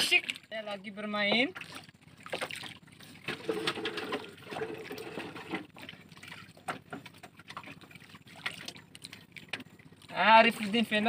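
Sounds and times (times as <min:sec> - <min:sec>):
water lapping against a boat: 0:00.0 - 0:11.0
knocks and rustles of a fishing line: 0:06.6 - 0:07.9.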